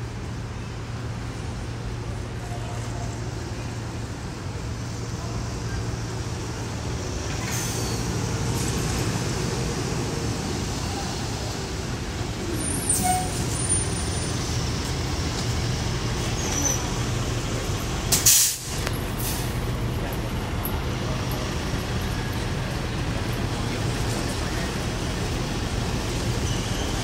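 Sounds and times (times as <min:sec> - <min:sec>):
bus engine idling: 0:00.0 - 0:27.0
air brake hiss: 0:18.1 - 0:19.6.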